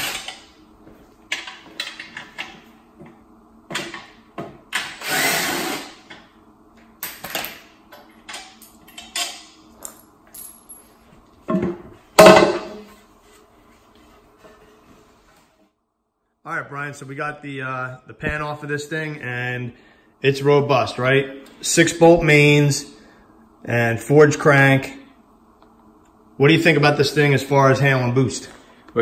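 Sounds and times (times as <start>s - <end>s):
cordless drill whirring: 5.0s - 6.0s.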